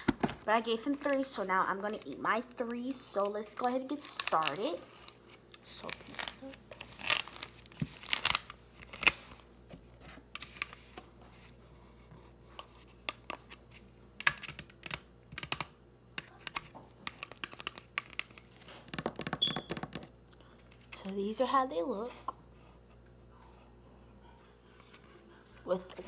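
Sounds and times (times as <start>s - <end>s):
plastic film wrapper crinkling: 0.8s - 9.4s, 17.0s - 20.0s.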